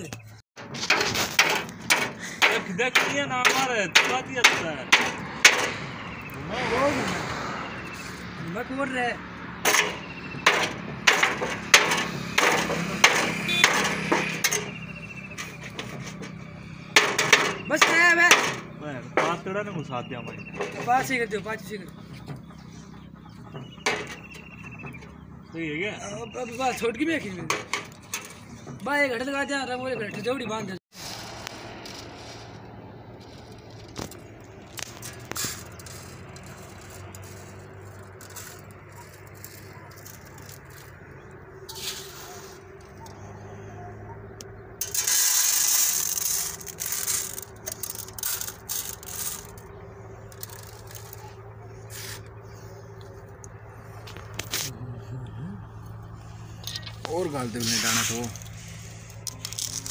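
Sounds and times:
hammer striking metal tin: 0:17.0 - 0:18.6
metallic clicks and rattles: 0:33.2 - 0:41.1, 0:44.3 - 0:51.4.

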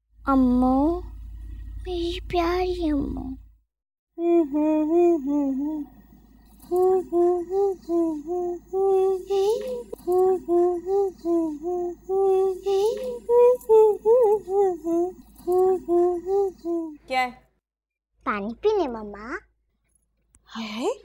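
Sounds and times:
high voice singing: 0:04.2 - 0:06.0, 0:06.6 - 0:17.0.

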